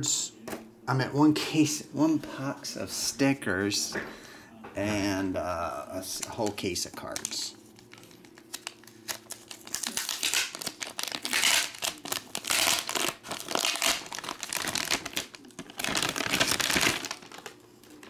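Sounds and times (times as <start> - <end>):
foil wrapper crinkling: 6.2 - 18.0.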